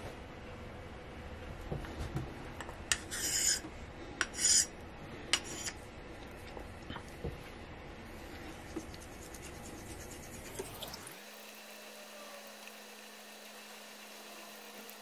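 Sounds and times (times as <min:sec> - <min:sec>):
razor rasping on whetstone: 0:02.9 - 0:03.6, 0:04.2 - 0:04.7, 0:05.4 - 0:05.8, 0:08.8 - 0:10.6.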